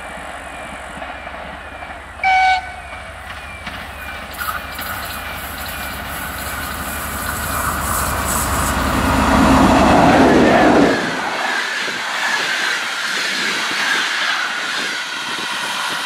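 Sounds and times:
train running noise: 0:00.0 - 0:16.0
diesel engine running: 0:00.8 - 0:11.2
locomotive horn toot: 0:02.2 - 0:03.2.

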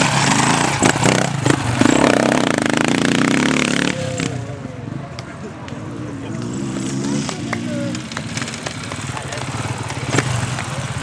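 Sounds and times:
dirt bike engine revving past: 0:00.0 - 0:04.5, 0:06.2 - 0:11.0
sharp clacks: 0:06.4 - 0:11.0.

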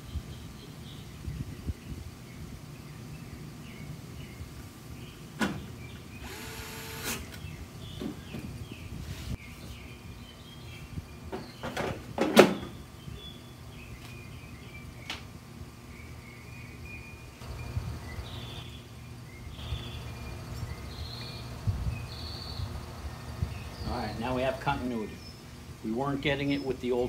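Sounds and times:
birds chirping faintly: 0:00.0 - 0:27.0
cordless screwdriver motor whirring: 0:06.2 - 0:07.4.

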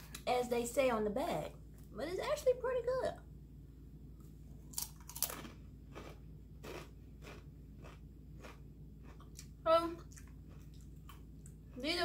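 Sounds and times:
faint low hum: 0:00.0 - 0:12.0
chip crunching while chewed: 0:04.6 - 0:11.6.

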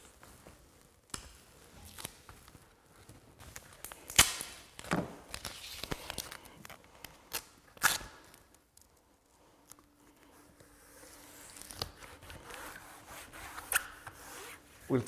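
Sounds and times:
tape pulled and torn: 0:01.1 - 0:08.9, 0:10.6 - 0:14.7.

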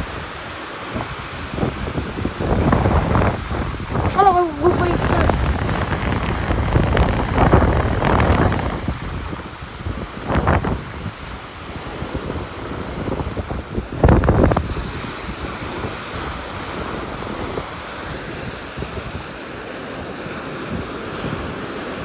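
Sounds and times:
surf breaking on beach: 0:00.0 - 0:22.0
wind over microphone: 0:00.0 - 0:22.0.

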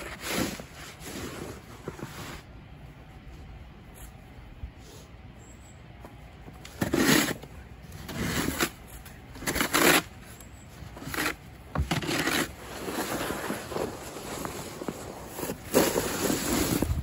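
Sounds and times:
snow shovel scraping: 0:00.0 - 0:02.5, 0:06.8 - 0:17.0.

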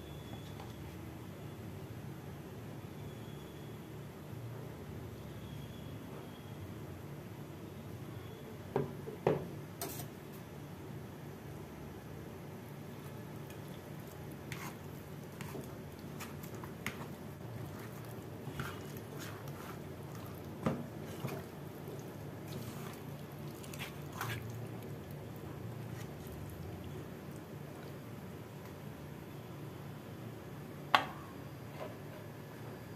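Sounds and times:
wet squelches of raw chicken: 0:13.6 - 0:28.0.

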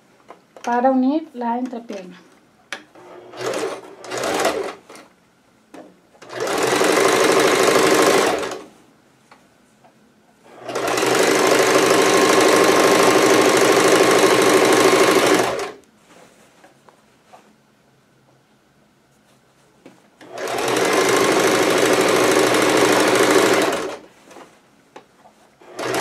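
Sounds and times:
sewing machine stitching: 0:03.0 - 0:05.1, 0:06.2 - 0:08.7, 0:10.5 - 0:15.8, 0:20.2 - 0:24.4, 0:25.6 - 0:26.0.

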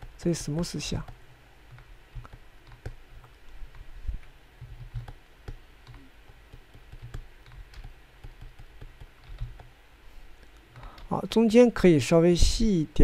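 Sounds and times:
low steady hum: 0:00.0 - 0:13.0
computer keyboard keys clicking: 0:00.5 - 0:03.9, 0:04.6 - 0:09.7.

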